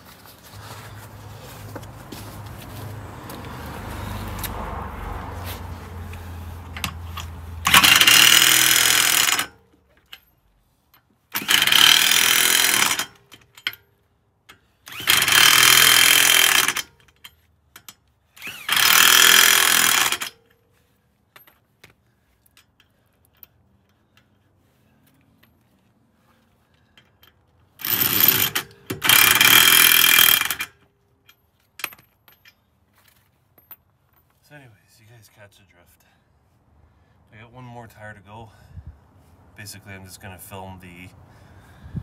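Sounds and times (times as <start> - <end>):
impact wrench hammering: 6.8 - 9.6, 11.3 - 13.8, 14.9 - 17.0, 18.6 - 20.4, 27.8 - 30.8.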